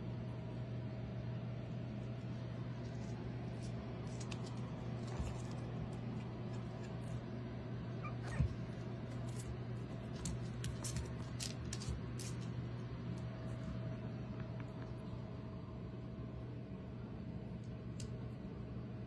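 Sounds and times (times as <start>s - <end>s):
claws clicking on floor: 2.9s - 7.2s, 9.1s - 13.7s
puppy squeaks: 8.0s - 8.5s.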